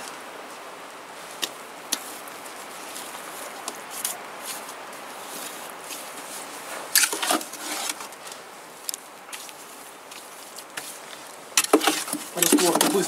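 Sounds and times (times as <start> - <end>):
trowel scraping mortar: 6.9 - 8.1, 11.6 - 13.0
bricks being set: 11.6 - 13.0.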